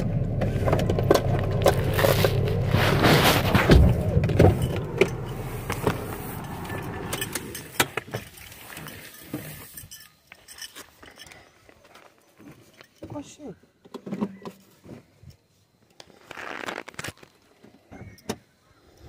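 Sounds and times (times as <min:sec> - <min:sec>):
car engine rumble: 0:00.0 - 0:10.0.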